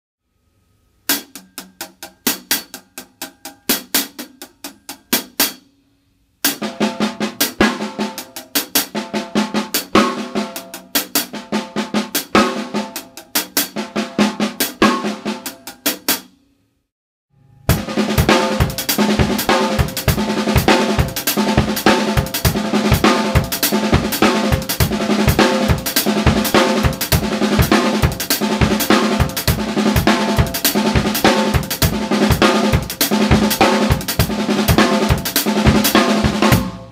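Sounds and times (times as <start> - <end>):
drum kit groove: 1.1 - 5.7, 6.4 - 16.3, 17.7 - 36.9
cymbals: 17.7 - 36.9.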